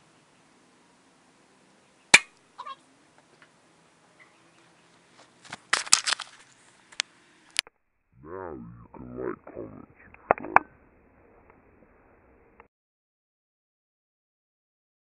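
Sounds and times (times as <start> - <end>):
sharp crack: 2.1 - 2.4.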